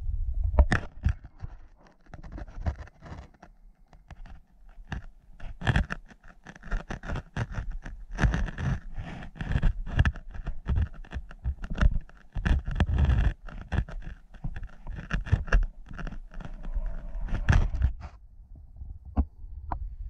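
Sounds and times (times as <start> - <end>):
low rumble of moving water: 0.0 - 1.8, 12.3 - 20.0
camera case knocking and scraping: 0.6 - 18.2.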